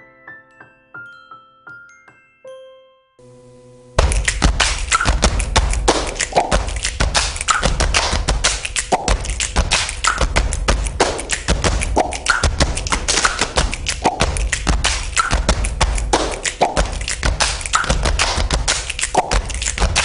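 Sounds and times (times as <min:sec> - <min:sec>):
fast percussion rhythm: 0:04.0 - 0:20.0.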